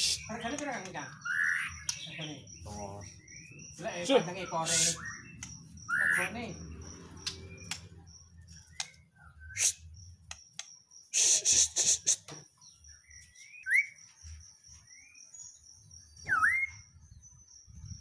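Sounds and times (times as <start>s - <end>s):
high insect trill: 0.0s - 18.0s
bird harsh rasping call: 1.2s - 2.3s, 4.4s - 6.6s
bird whistled notes: 8.7s - 9.8s, 13.4s - 14.0s, 16.2s - 17.0s.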